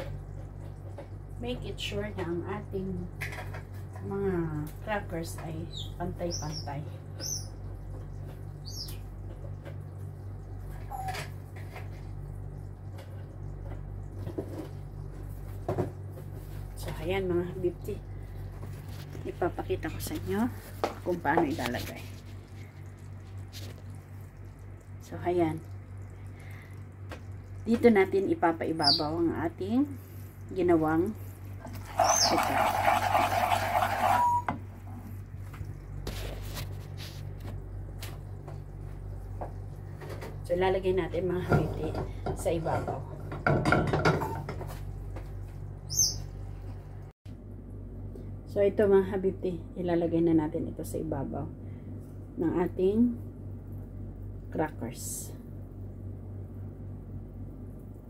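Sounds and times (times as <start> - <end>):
steady low hum: 0.0 - 33.2, 34.2 - 58.0
caramel bubbling in a pan: 7.0 - 34.4
short high squeak: 34.0 - 34.5.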